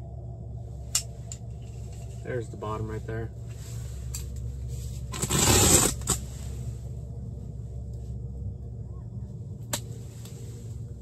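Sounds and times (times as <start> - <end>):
steady low hum: 0.0 - 11.0
fabric scraping rustle: 3.4 - 6.8.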